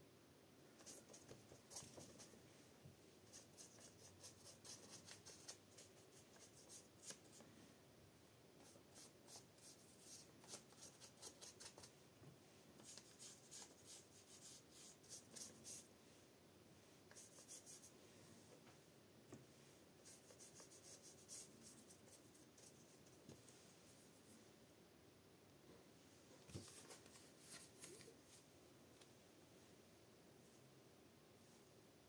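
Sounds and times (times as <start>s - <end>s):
paintbrush scratching on paper: 0.8s - 2.3s, 3.2s - 7.3s, 12.8s - 15.9s, 17.1s - 17.9s, 20.0s - 23.2s.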